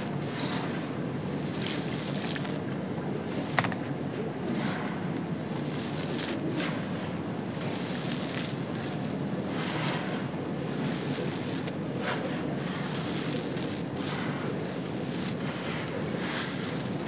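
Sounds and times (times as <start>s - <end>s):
sand pouring: 1.2s - 2.6s, 4.6s - 17.0s.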